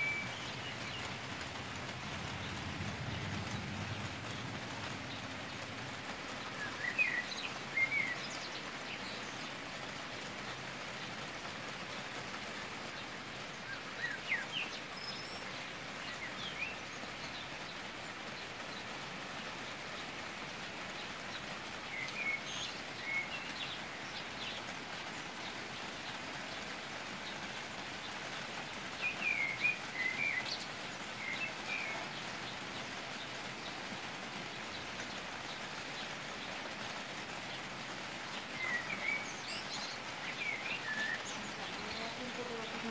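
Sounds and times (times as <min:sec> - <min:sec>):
rain shower hissing: 0:00.0 - 0:42.9.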